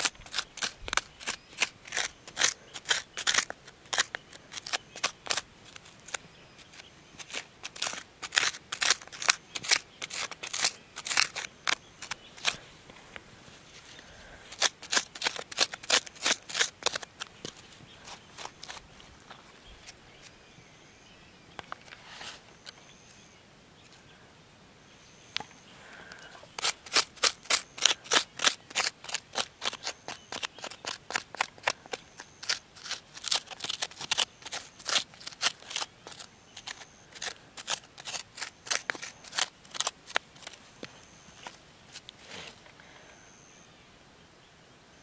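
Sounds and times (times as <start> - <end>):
crunching strokes on dry ground: 0.0 - 20.4, 25.4 - 43.0
faint high beeps: 41.0 - 41.5, 43.0 - 43.7.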